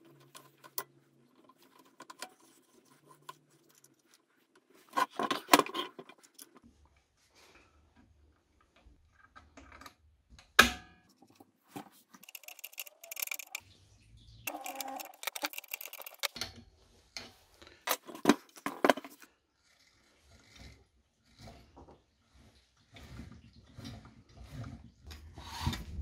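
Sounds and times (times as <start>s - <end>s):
small metal clicks and rattles: 11.1s - 13.6s, 14.5s - 17.3s.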